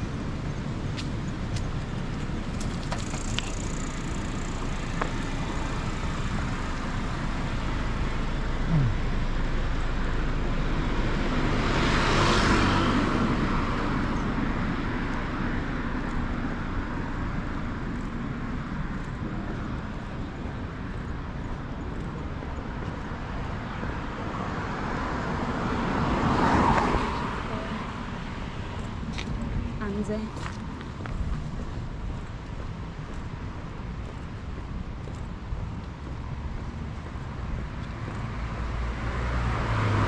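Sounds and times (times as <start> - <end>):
steady road traffic: 0.0 - 40.0
vehicle passing close by: 8.8 - 16.0, 37.3 - 40.0.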